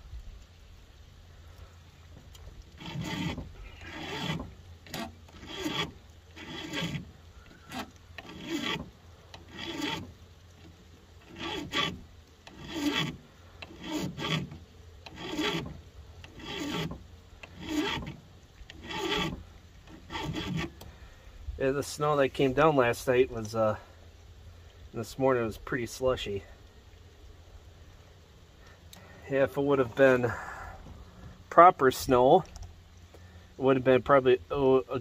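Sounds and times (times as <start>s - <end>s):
file rasping on chainsaw chain: 2.7s - 20.9s.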